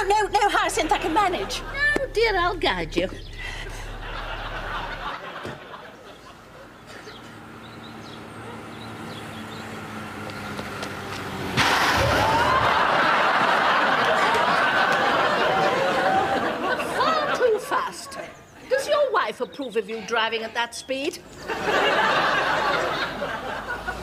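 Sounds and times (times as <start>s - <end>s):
car engine approaching: 0.0s - 17.2s
studio audience laughter: 3.7s - 7.0s, 12.3s - 17.6s, 21.4s - 24.0s.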